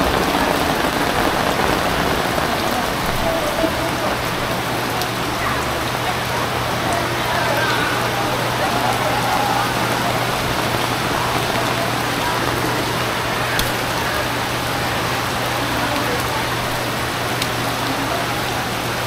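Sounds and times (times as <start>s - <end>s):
rain on floodwater: 0.0s - 19.0s.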